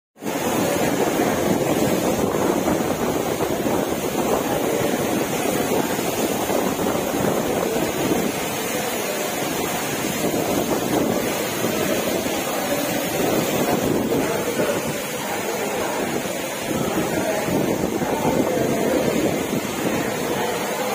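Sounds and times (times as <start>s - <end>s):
torrential rain in strong wind: 0.2s - 20.9s.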